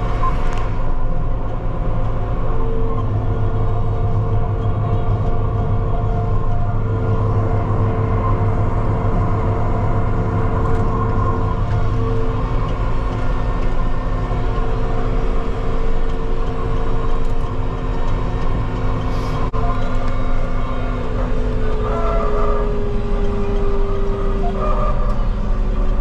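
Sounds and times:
tractor diesel engine droning: 0.0s - 26.0s.

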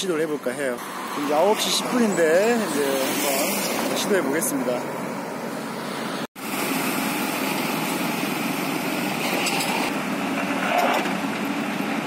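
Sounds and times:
motorbikes passing: 0.0s - 6.3s
tanker truck passing: 0.0s - 12.0s.

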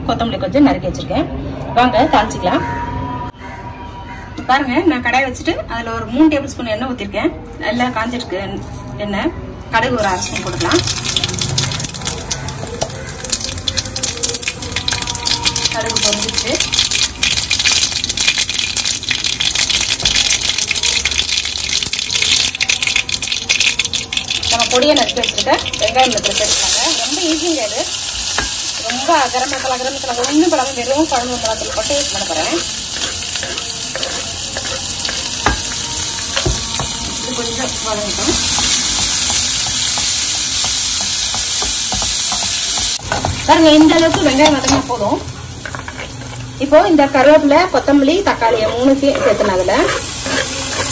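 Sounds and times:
seeds spluttering in hot oil: 10.0s - 50.9s
steel spoon scraping pan: 25.3s - 44.9s, 45.6s - 47.4s, 48.0s - 50.9s.

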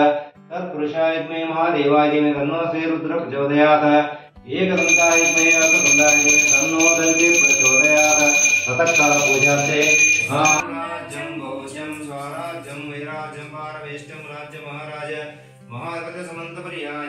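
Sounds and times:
hand bell ringing: 4.8s - 10.6s.

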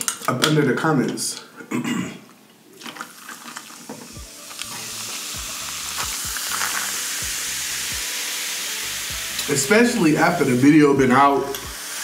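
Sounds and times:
soda fizzing: 2.7s - 12.0s
ice crackling: 2.8s - 11.7s.

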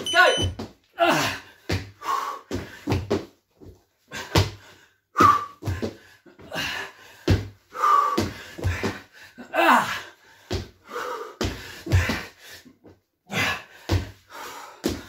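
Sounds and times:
heavy breaths and grunts: 1.0s - 3.1s, 4.0s - 15.0s.

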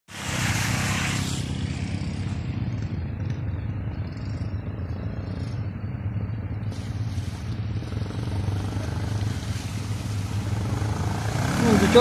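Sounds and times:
water spray hiss: 0.1s - 2.0s, 6.7s - 12.0s
motorcycle engine running: 1.0s - 12.0s.

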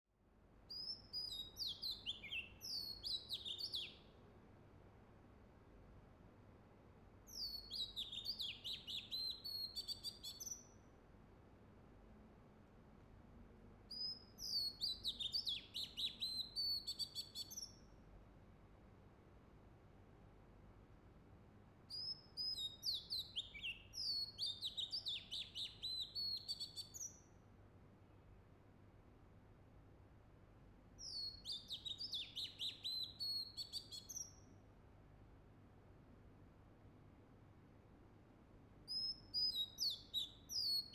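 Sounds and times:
faint steady background hiss: 0.0s - 40.9s
bird singing whistled notes: 0.7s - 4.1s, 7.3s - 10.8s, 13.9s - 17.9s, 21.9s - 27.4s, 31.0s - 34.6s, 38.9s - 40.9s.

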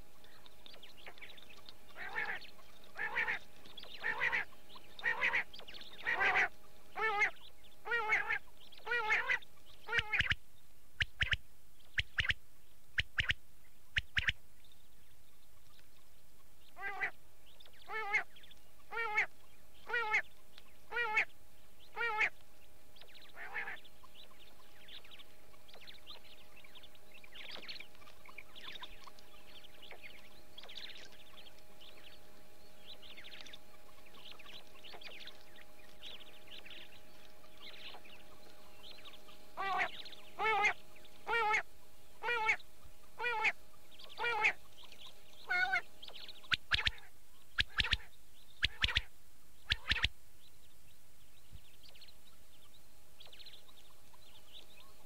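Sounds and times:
faint steady hum: 0.0s - 55.0s
quail calling: 0.9s - 10.4s, 11.0s - 12.4s, 13.0s - 14.4s, 16.8s - 17.2s, 17.8s - 21.3s, 21.9s - 22.4s, 23.2s - 24.7s, 32.9s - 50.2s.

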